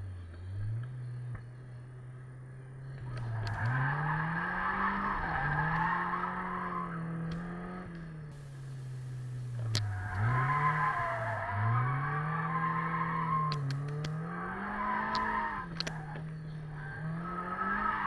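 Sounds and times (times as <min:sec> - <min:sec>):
car engine revving hard: 0:03.6 - 0:18.0
tyres squealing: 0:08.4 - 0:13.9.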